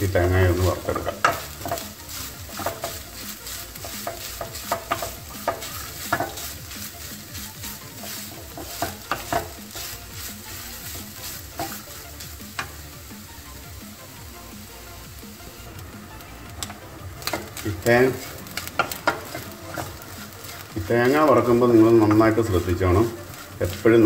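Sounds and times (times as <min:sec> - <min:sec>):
wooden spoon scraping a pan: 0:00.0 - 0:12.9, 0:16.6 - 0:24.0
faint sizzle: 0:00.0 - 0:24.0.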